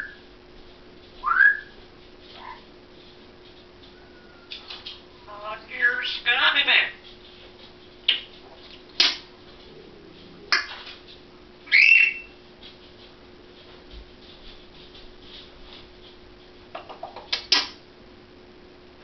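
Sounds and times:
parrot rising whistle: 0:01.2 - 0:01.8, 0:04.0 - 0:04.5, 0:11.7 - 0:12.4
parrot clicking and squawking: 0:10.5 - 0:10.9.

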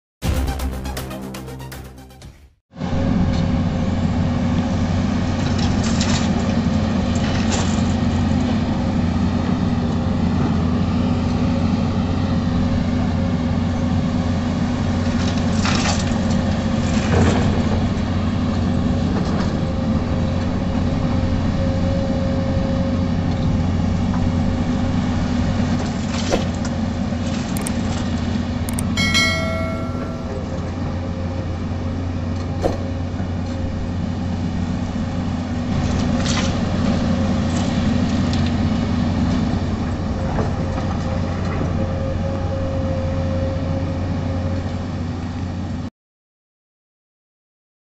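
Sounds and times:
excavator diesel engine running: 0:00.2 - 0:45.9
brief ringing tone: 0:28.7 - 0:30.8.

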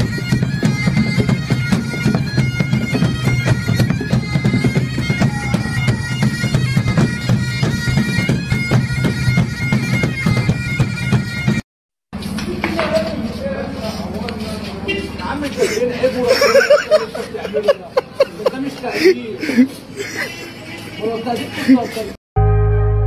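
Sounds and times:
bagpipe chanter melody: 0:00.0 - 0:11.6
bagpipe drone: 0:00.0 - 0:11.6.

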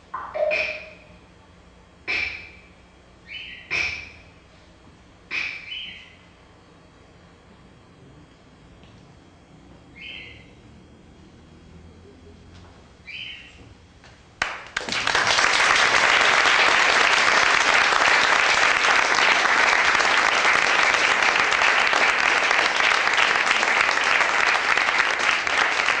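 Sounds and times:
audience applauding: 0:14.4 - 0:26.0.

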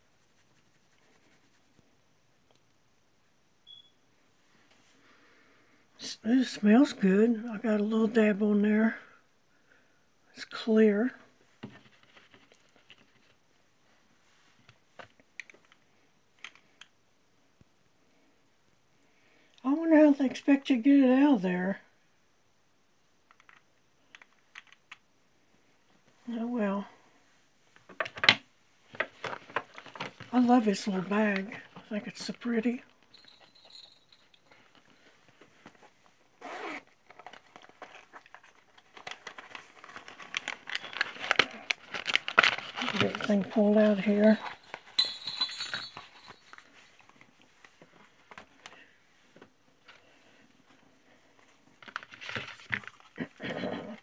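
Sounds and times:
packaging rustling and crinkling: 0:28.9 - 0:32.4, 0:33.0 - 0:48.8, 0:51.4 - 0:53.2
bag unzipping: 0:36.4 - 0:37.0.

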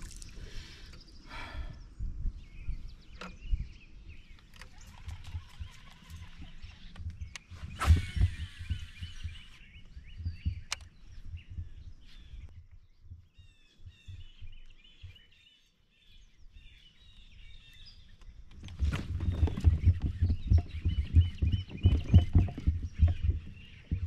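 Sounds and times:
songbirds chirping: 0:00.0 - 0:24.0
low uneven rumbling thumps: 0:18.6 - 0:24.0.

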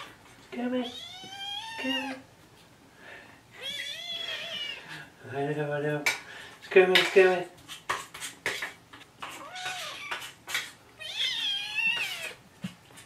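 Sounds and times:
kittens meowing: 0:03.6 - 0:05.0, 0:09.4 - 0:10.3, 0:11.0 - 0:12.4.

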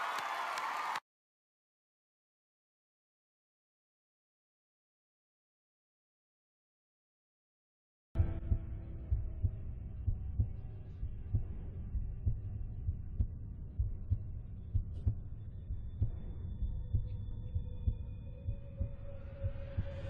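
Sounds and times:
heartbeat thumps: 0:08.2 - 0:20.0
low drone: 0:08.2 - 0:20.0.

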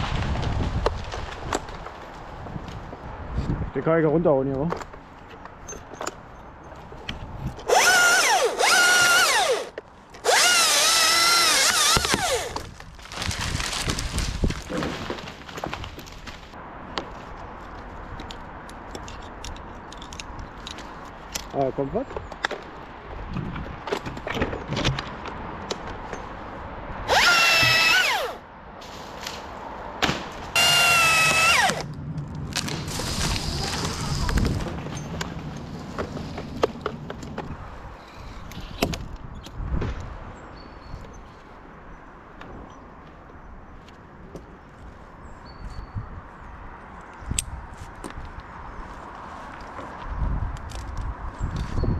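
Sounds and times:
chainsaw revving: 0:07.7 - 0:12.6, 0:27.1 - 0:28.4, 0:30.6 - 0:31.8
power tool whining: 0:07.7 - 0:12.6, 0:27.1 - 0:28.4, 0:30.6 - 0:31.8.

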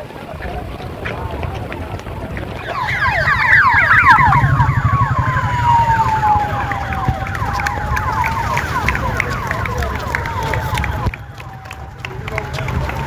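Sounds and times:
traffic rumble: 0:00.0 - 0:13.0
siren chirps: 0:02.4 - 0:11.1
siren wail: 0:02.4 - 0:12.0.

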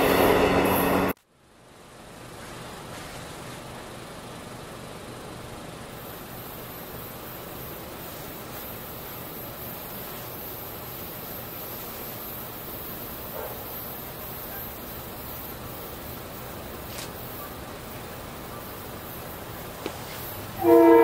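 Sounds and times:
outdoor background hiss: 0:01.1 - 0:21.0.

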